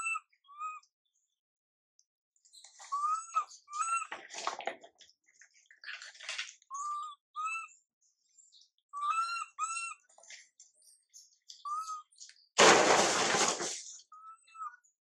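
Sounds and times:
baby monkey coo calls: 2.9s - 4.1s, 6.7s - 7.7s, 9.0s - 10.0s
baby monkey raspy cries: 9.0s - 10.0s.

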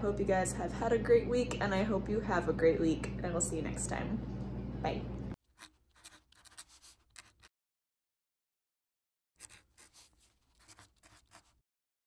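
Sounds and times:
pen scratching on paper: 5.6s - 7.5s, 9.4s - 11.6s.

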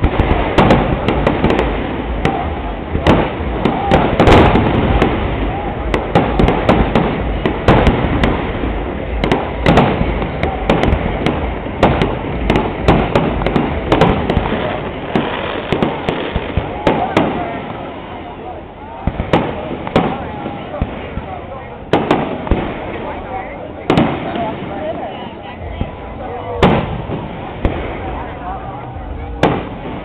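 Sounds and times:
fireworks rumble and crackle: 0.0s - 30.0s.

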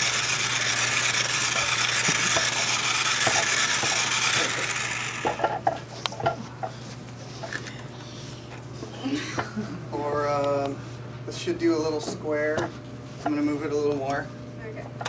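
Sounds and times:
toy car motor whirring: 0.0s - 5.6s.

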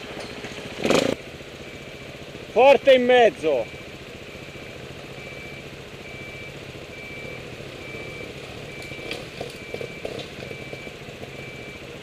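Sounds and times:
engine running: 0.0s - 12.0s
back-up alarm beeping: 3.5s - 11.9s
knocks and clatters: 8.8s - 11.3s.

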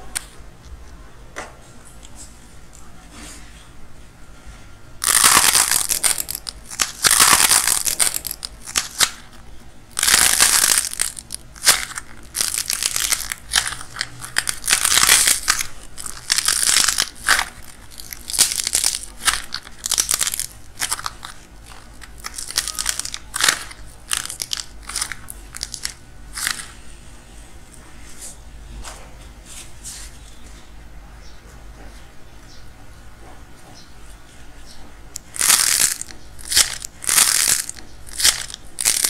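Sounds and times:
soft clay squishing: 4.6s - 28.4s
dried clay cracking: 5.0s - 26.7s, 35.2s - 39.0s.

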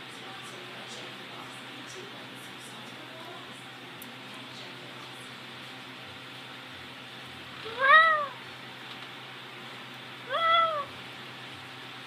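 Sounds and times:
cat meowing: 7.6s - 8.4s, 10.2s - 10.9s.

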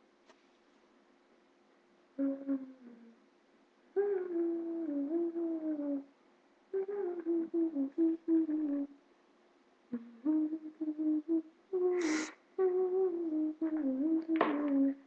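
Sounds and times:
woman humming a tune: 2.2s - 3.2s, 4.0s - 6.1s, 6.7s - 9.0s, 9.9s - 15.0s.

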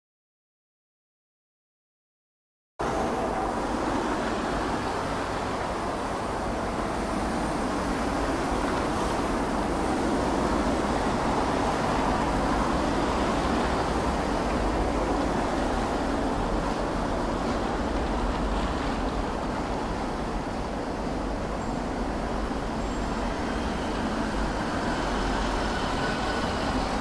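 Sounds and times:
distant road traffic rumble: 2.8s - 27.0s.

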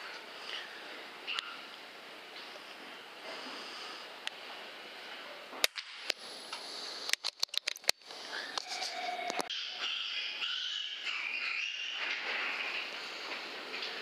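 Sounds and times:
steady background hiss: 0.0s - 7.1s
sharp clicks: 7.1s - 8.1s.

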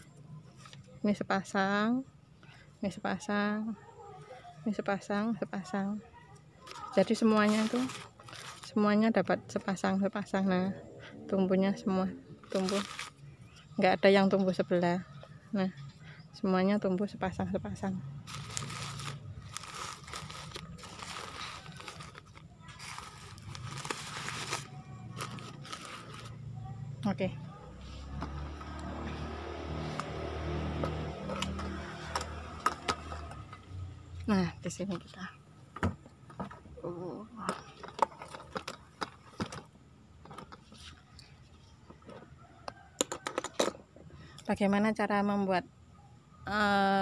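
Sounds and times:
plastic bag crinkling: 6.6s - 8.8s, 12.4s - 13.3s, 18.2s - 26.5s
leaves rustling: 6.7s - 8.8s, 12.4s - 13.3s, 18.2s - 26.5s.

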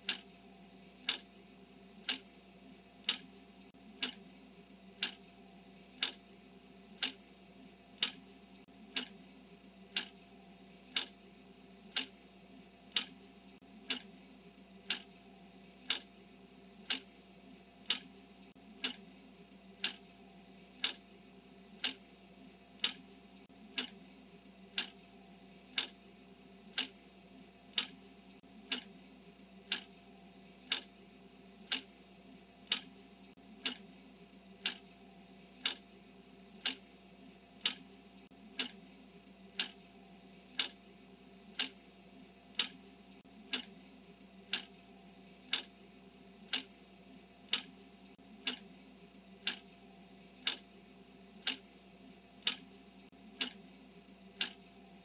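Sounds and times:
timer ticking: 0.0s - 0.4s, 1.0s - 1.3s, 2.0s - 2.4s, 3.0s - 3.4s, 4.0s - 4.3s, 5.0s - 5.4s, 6.0s - 6.2s, 7.0s - 7.4s, 8.0s - 9.2s, 9.9s - 11.2s, 11.9s - 14.2s, 14.8s - 15.2s, 15.8s - 16.1s, 16.8s - 19.1s, 19.8s - 20.1s, 20.8s - 21.1s, 21.8s - 24.0s, 24.7s - 26.0s, 26.7s - 27.1s, 27.7s - 29.0s, 29.6s - 30.9s, 31.6s - 34.0s, 34.6s - 35.9s, 36.6s - 37.0s, 37.6s - 38.8s, 39.5s - 39.8s, 40.5s - 40.8s, 41.5s - 43.8s, 44.5s - 44.8s, 45.4s - 45.8s, 46.4s - 46.8s, 47.4s - 48.8s, 49.4s - 50.7s, 51.4s - 53.7s, 54.3s - 55.0s
faint steady hum: 0.0s - 55.0s.

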